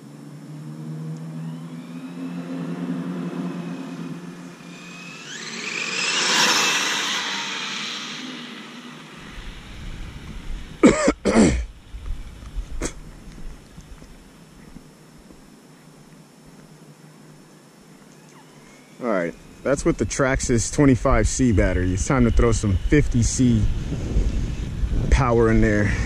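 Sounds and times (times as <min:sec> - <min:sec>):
rc truck electric motor whining: 0:01.1 - 0:10.8, 0:21.5 - 0:25.0.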